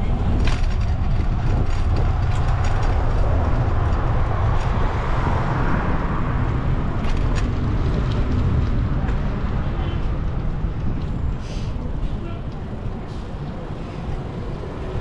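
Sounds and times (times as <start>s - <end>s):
road traffic: 0.0s - 15.0s
wind rumble on microphone: 0.0s - 15.0s.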